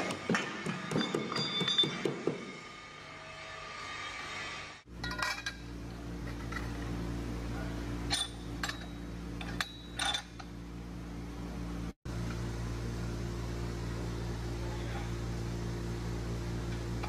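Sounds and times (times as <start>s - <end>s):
steady low hum: 0.0s - 17.0s
steel parts clinking: 4.9s - 6.8s, 8.1s - 10.6s.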